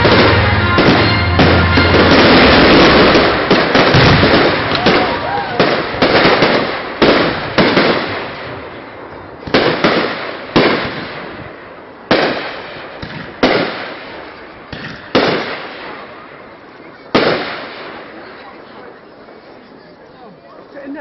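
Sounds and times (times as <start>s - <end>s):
fireworks shells bursting: 0.0s - 8.6s.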